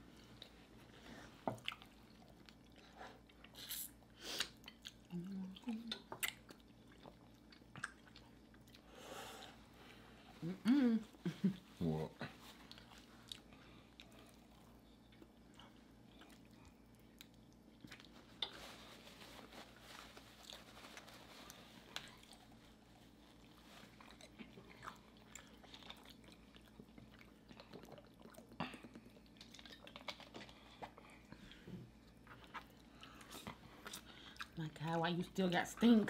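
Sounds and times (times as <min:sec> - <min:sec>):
low steady hum: 0:00.0 - 0:36.0
people chewing and lip-smacking: 0:00.2 - 0:08.9, 0:12.6 - 0:18.6, 0:21.9 - 0:34.6.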